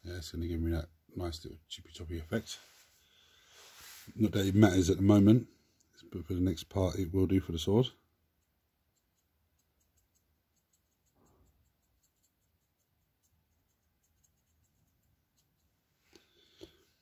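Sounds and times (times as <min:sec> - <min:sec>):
small ticks: 0:08.4 - 0:16.8.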